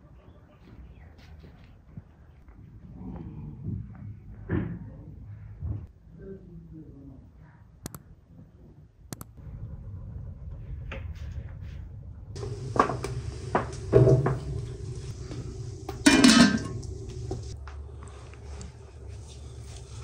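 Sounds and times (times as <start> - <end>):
low steady rumble: 9.4 - 20.0
pot scraping on stove top: 12.4 - 17.6
metallic pot clatter: 15.9 - 17.6.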